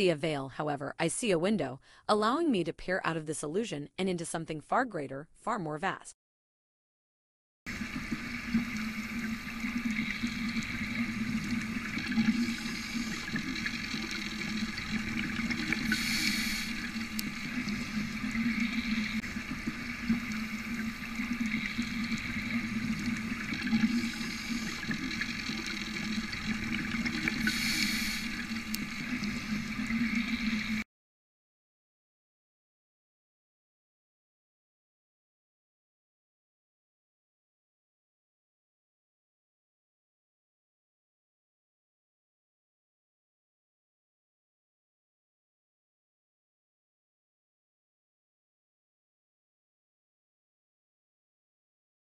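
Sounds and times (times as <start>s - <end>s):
rushing water-like noise: 7.7s - 30.8s.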